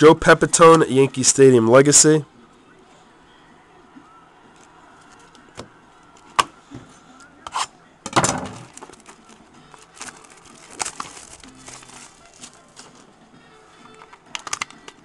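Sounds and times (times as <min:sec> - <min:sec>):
foil wrapper crinkling: 0:08.6 - 0:13.1, 0:13.8 - 0:15.0
cards clicking and tapping: 0:13.8 - 0:15.0.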